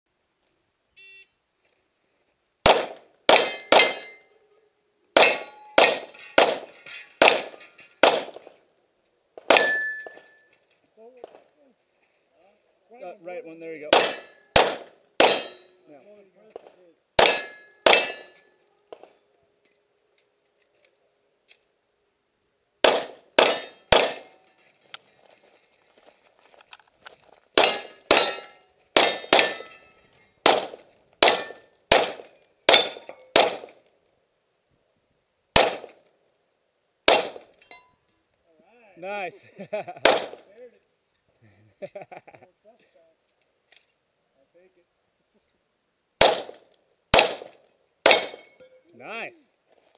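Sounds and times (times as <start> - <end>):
handgun shots: 2.7 - 4.2, 5.2 - 8.4, 13.9 - 15.6, 17.2 - 19.1, 22.8 - 24.3, 30.4 - 33.8, 35.6 - 36.0, 37.1 - 37.5, 40.0 - 40.4, 46.2 - 48.5
steel targets ringing: 3.3 - 4.4, 5.2 - 8.2, 9.5 - 10.5, 13.9 - 14.6, 15.2 - 15.8, 17.2 - 18.6, 23.4 - 24.7, 27.6 - 30.1, 31.2 - 31.8.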